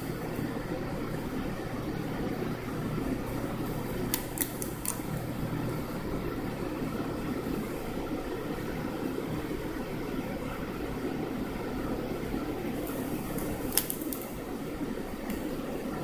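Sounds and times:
steady background hum: 0.0s - 16.0s
plastic sleeve crinkling: 12.8s - 14.4s.

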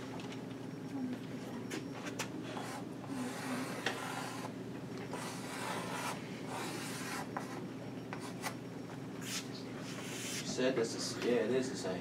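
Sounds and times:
chalk scratching on blackboard: 2.5s - 4.5s, 5.1s - 8.6s, 9.2s - 10.5s.

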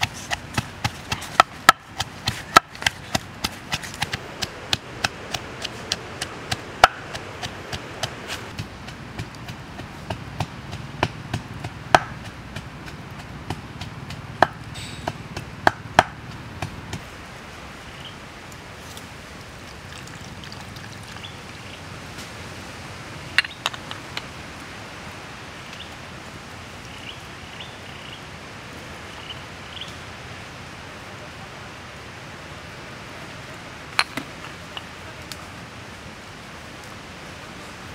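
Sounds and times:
outdoor background: 0.0s - 37.9s
liquid pouring: 19.6s - 21.8s.

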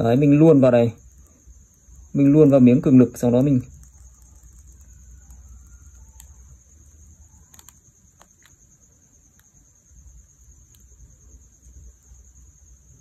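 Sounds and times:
high-pitched chirring: 0.0s - 8.8s.

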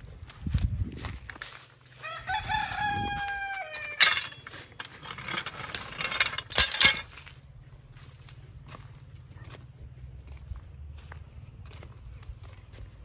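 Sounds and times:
rooster crowing: 1.9s - 4.5s
steel linkage arms knocking: 3.8s - 7.1s.

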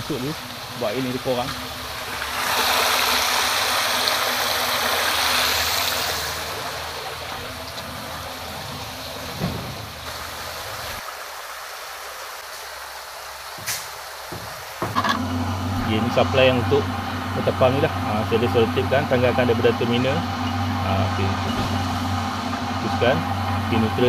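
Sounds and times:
water gushing into a tank: 0.0s - 24.0s
low hum: 15.0s - 24.0s.

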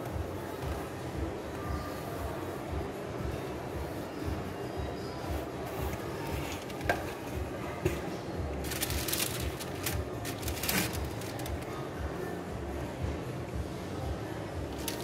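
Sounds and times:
paper rustling: 8.6s - 11.7s, 14.7s - 15.0s.

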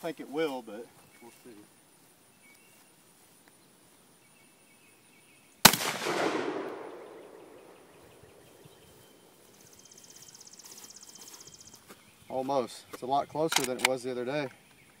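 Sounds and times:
shotgun shot: 5.6s - 8.0s
gunshot echo: 5.6s - 8.6s.

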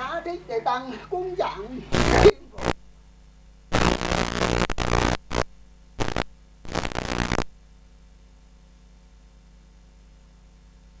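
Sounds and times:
low steady hum: 0.0s - 11.0s
harsh static bursts: 1.9s - 3.0s, 3.7s - 7.5s.

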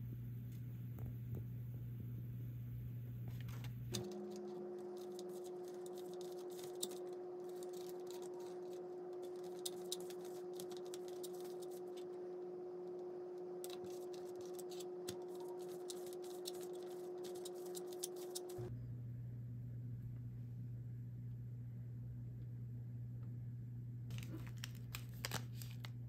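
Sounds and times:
steady low hum: 0.0s - 26.0s
sugar grains crackling: 4.1s - 18.6s, 24.1s - 26.0s.

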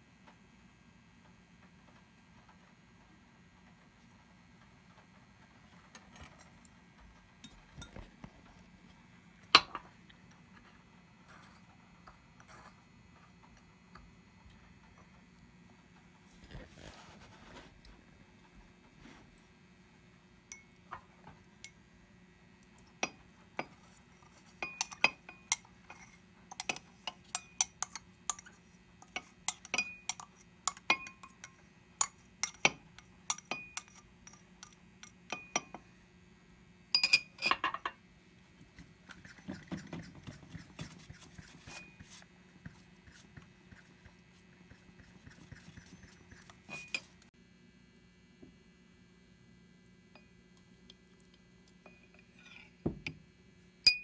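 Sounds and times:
soft scraping: 16.3s - 17.9s
glass clatter: 37.0s - 38.0s
glass vessels clinking: 37.0s - 38.0s.

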